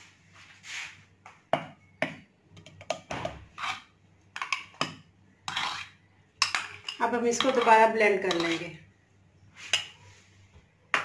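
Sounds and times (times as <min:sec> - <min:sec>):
metal spoon clinking on blender jar: 0:04.4 - 0:08.6.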